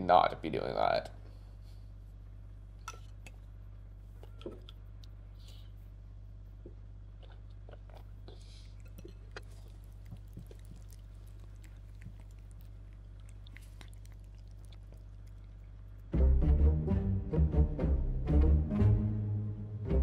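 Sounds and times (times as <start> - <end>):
low room hum: 0.0 - 20.0
chewing cereal: 6.5 - 16.2.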